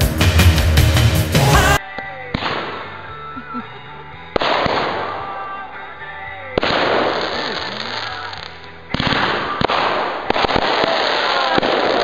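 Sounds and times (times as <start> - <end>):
fireworks bursting with crackle: 6.6 - 12.0.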